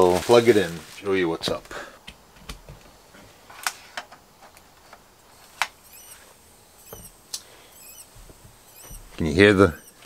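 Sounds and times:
sharp clicks: 5.4 - 10.0
high electronic chirps: 5.8 - 10.0.

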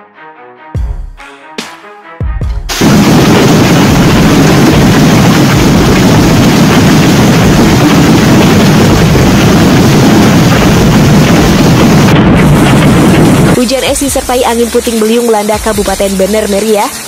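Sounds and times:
heavy rain and hail: 2.7 - 17.0
wind buffeting microphone: 2.8 - 14.3.

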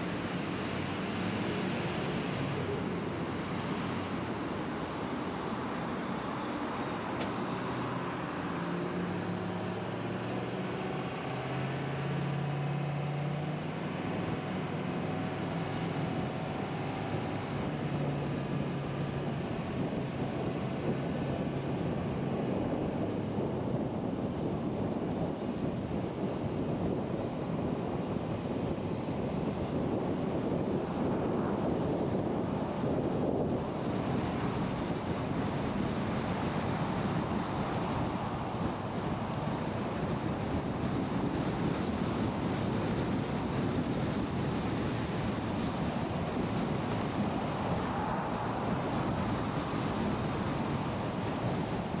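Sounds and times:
car engine hum: 0.0 - 52.0
tyre and wind noise: 0.0 - 52.0.

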